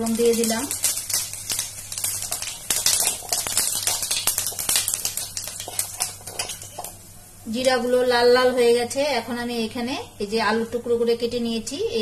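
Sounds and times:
seeds popping in hot oil: 0:00.0 - 0:08.0.

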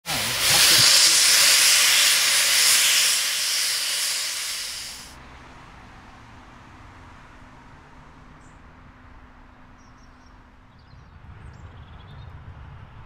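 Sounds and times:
steam venting hiss: 0:00.0 - 0:05.2.

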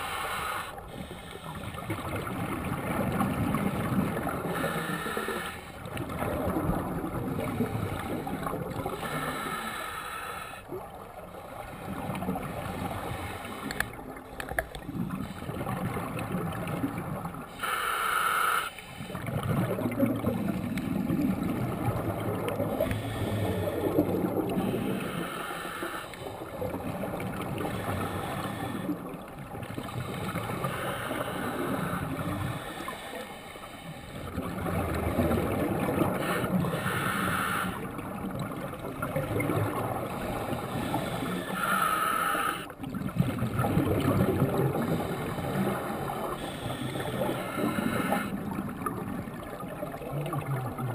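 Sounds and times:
underwater regulator breathing: 0:00.0 - 0:01.9, 0:04.2 - 0:05.9, 0:07.7 - 0:10.8, 0:12.6 - 0:15.7, 0:17.5 - 0:19.3, 0:22.6 - 0:26.6, 0:27.4 - 0:34.4, 0:36.0 - 0:38.0, 0:40.2 - 0:44.1, 0:44.7 - 0:48.5
exhaled air bubbling: 0:00.0 - 0:50.9.

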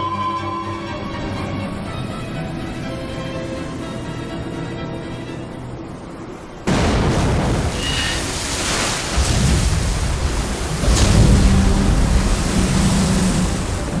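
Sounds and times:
rush of water spray and surf: 0:06.7 - 0:14.0
deep rumble: 0:09.1 - 0:14.0.

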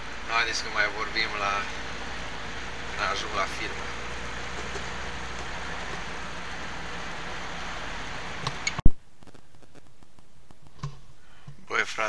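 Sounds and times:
road noise: 0:00.0 - 0:08.8
truck engine rumble: 0:00.0 - 0:08.8.

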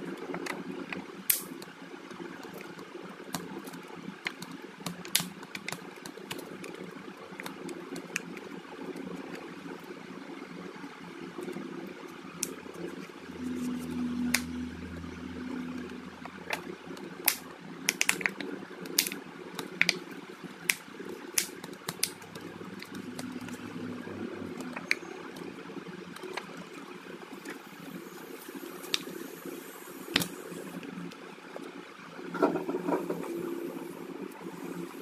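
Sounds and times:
low hum: 0:12.7 - 0:17.0, 0:22.2 - 0:25.4
sharp clicks and crackles: 0:16.4 - 0:23.7
steady hiss: 0:27.3 - 0:31.1, 0:32.6 - 0:35.0.

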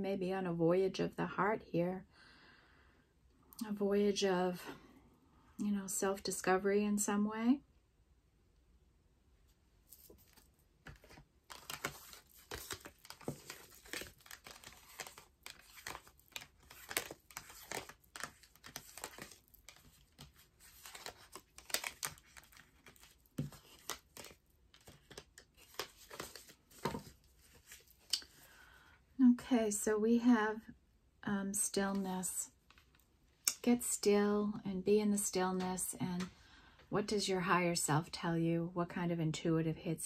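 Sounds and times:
cards being shuffled: 0:09.9 - 0:28.5.

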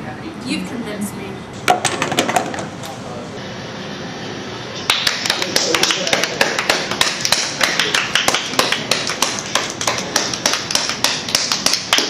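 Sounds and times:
people clapping: 0:04.9 - 0:12.0.

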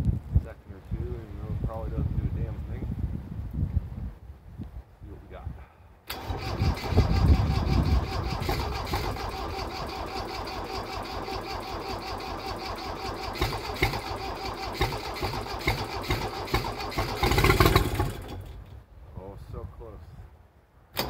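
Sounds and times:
diesel tractor engine running: 0:06.1 - 0:18.8.

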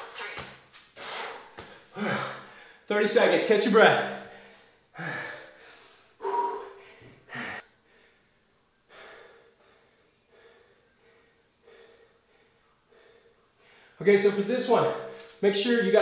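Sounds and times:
man breathing hard: 0:01.0 - 0:02.9, 0:04.2 - 0:14.0.

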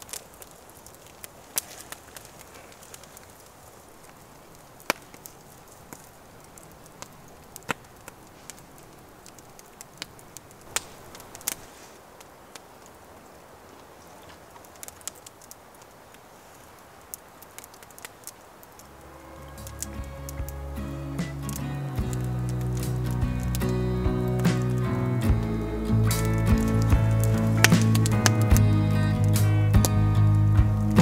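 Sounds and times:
campfire crackling: 0:00.0 - 0:31.0.

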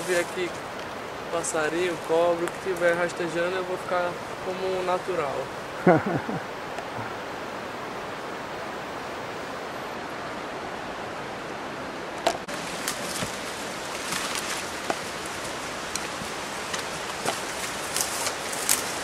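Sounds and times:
footsteps through leaf litter: 0:00.0 - 0:00.6, 0:12.4 - 0:19.0.

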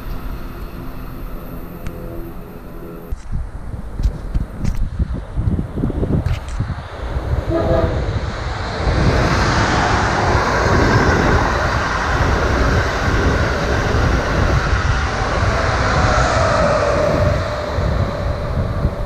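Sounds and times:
humming tone: 0:00.0 - 0:03.2, 0:07.4 - 0:08.4
train passing at speed: 0:00.0 - 0:19.0.

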